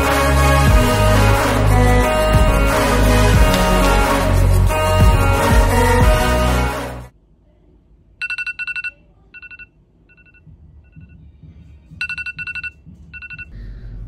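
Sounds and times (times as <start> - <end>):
phone alarm rapid beeping: 8.2 - 11.2, 12.0 - 13.6.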